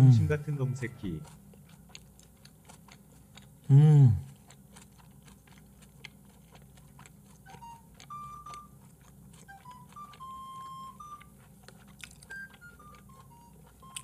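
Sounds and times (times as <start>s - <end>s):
beep-like melody: 0.0s - 1.2s, 9.6s - 11.3s
wet chewing clicks: 0.4s - 14.0s.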